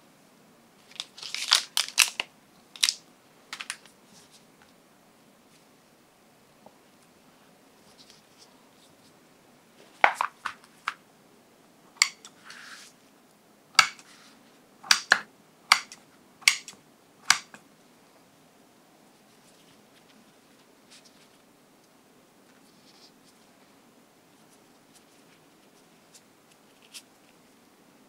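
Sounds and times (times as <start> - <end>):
rustle: 12.3 - 13.4, 19.0 - 27.7.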